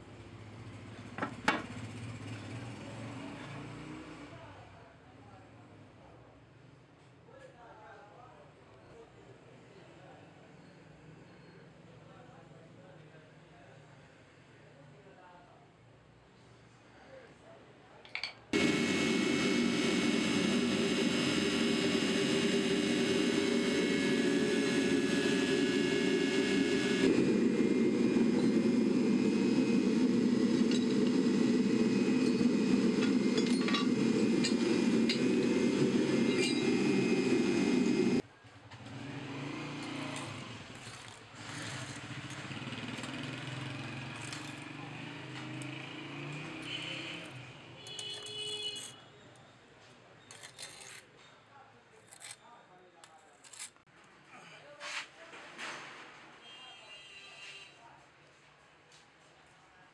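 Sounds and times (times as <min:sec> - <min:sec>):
air blower whirring: 0:18.6 - 0:38.2.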